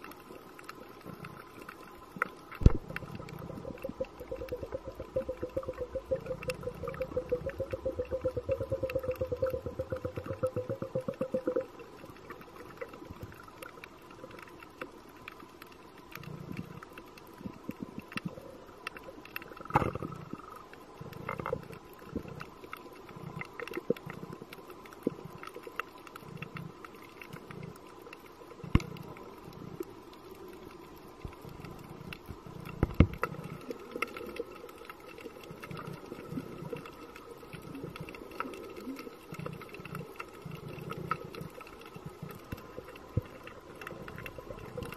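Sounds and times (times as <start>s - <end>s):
faint steady hum: 0.0s - 44.9s
underwater clicks and crackles: 0.0s - 44.9s
low underwater rumble: 2.4s - 13.1s.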